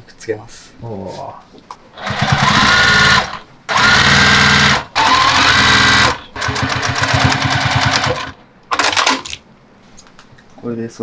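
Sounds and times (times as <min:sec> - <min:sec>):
sewing machine stitching: 0:02.0 - 0:09.4.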